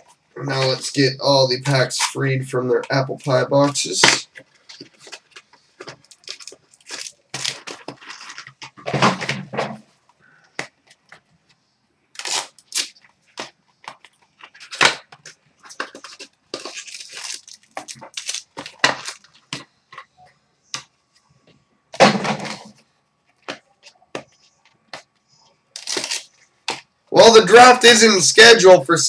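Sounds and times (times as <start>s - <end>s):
cardboard boxes tearing: 6.0s - 8.6s, 12.2s - 13.0s, 25.8s - 26.3s.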